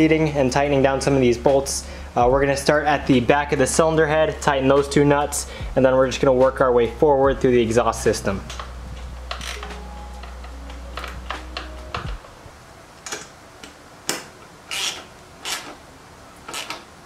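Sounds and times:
steady low hum: 0.0 - 16.3
ratchet wrench rasping: 14.7 - 15.7.

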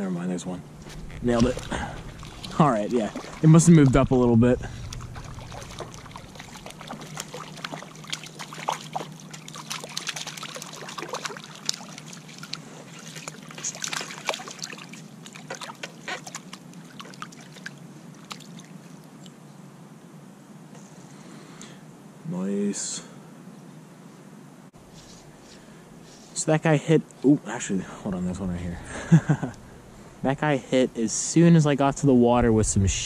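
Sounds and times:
low hum: 0.4 - 9.6, 27.9 - 33.0
water splashing and trickling: 0.6 - 19.3.

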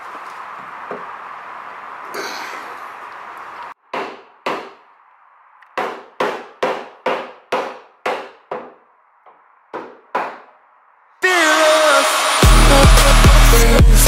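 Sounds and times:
hammer striking metal: 5.8 - 8.8.

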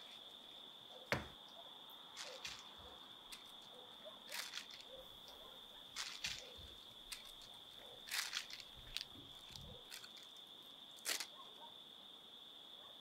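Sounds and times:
sharp clicks and rustles: 2.2 - 3.6, 4.3 - 5.4, 6.0 - 10.4.

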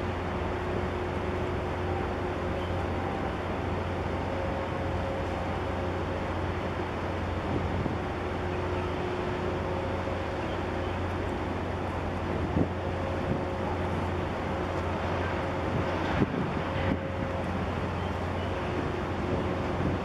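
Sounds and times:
ship engine drone: 0.0 - 20.0
wind noise on microphone: 7.4 - 8.2, 12.2 - 14.4, 15.0 - 20.0.

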